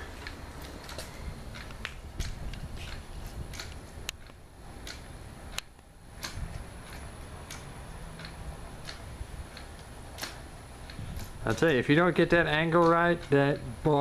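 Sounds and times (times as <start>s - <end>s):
wind rumble on microphone: 1.0s - 5.6s, 6.2s - 9.8s, 10.8s - 11.8s.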